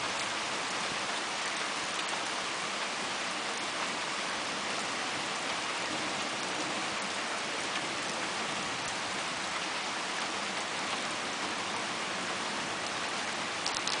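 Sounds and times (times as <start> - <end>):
steady rain: 0.0 - 14.0
sharp clicks: 13.6 - 14.0.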